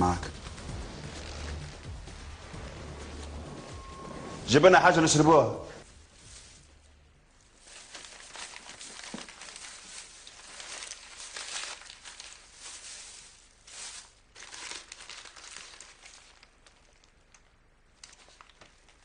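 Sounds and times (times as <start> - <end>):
plastic bag crinkling: 6.2 - 19.0.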